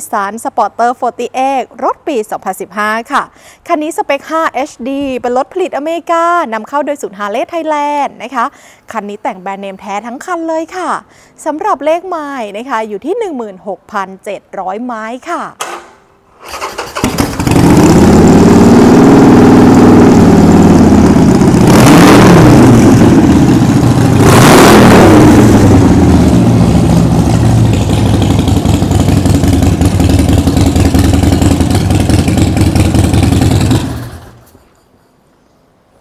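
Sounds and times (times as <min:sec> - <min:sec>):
motorcycle engine idling and revving: 0:16.5 - 0:34.6.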